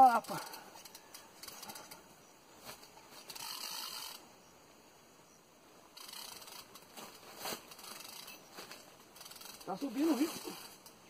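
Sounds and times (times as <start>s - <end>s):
fishing reel whirring: 3.2s - 4.4s, 5.9s - 8.5s, 9.1s - 11.0s.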